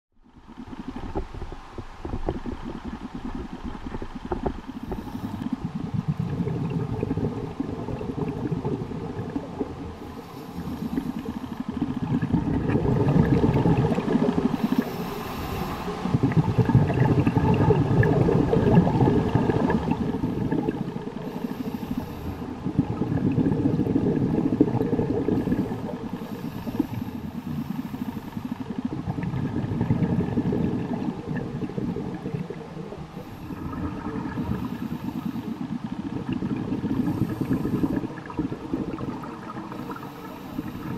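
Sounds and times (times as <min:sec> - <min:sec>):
exhaled bubbles rumbling: 0:00.2 - 0:40.9
hissing regulator breaths: 0:10.1 - 0:11.6, 0:14.5 - 0:16.1, 0:21.2 - 0:22.6, 0:25.4 - 0:28.6, 0:36.9 - 0:38.1.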